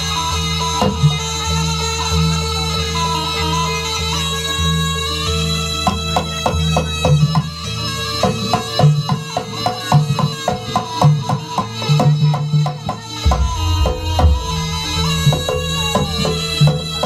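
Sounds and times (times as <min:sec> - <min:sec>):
drums and struck percussion: 0:00.0 - 0:03.8, 0:04.7 - 0:17.0
deep low part: 0:13.2 - 0:16.8
held droning note: 0:13.2 - 0:17.0.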